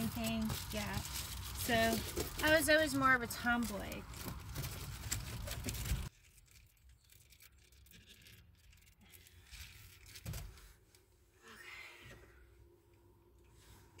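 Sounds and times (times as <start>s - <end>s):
close rustling and crinkling: 0.0s - 11.2s.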